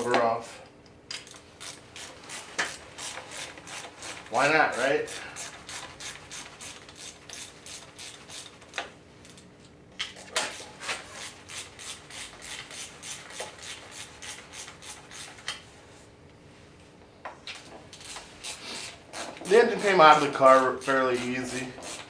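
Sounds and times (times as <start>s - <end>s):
hand ratchet clicking: 1.1s - 8.8s, 17.9s - 22.0s.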